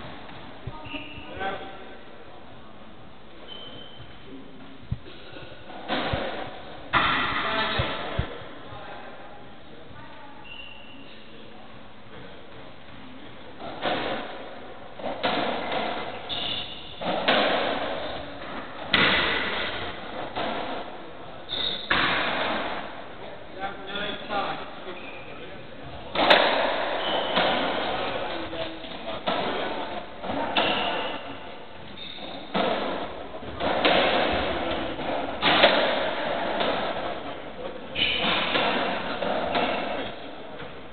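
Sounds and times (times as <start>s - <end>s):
shoe squeak on wooden floor: 0.8s - 1.4s, 3.4s - 4.2s, 10.4s - 11.2s, 16.2s - 17.0s, 21.5s - 21.9s, 24.9s - 25.4s, 26.9s - 27.4s, 30.6s - 32.5s
ball hitting wall: 5.7s - 8.3s, 17.0s - 20.9s, 21.8s - 22.9s
racket hitting ball: 15.0s - 20.9s, 21.8s - 22.9s, 26.1s - 28.3s, 29.2s - 31.6s, 32.2s - 37.3s, 38.0s - 40.2s.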